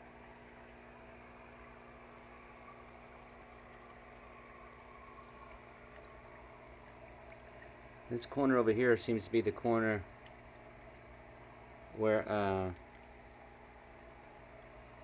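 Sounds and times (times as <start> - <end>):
aquarium filter humming: 0.0 - 15.0.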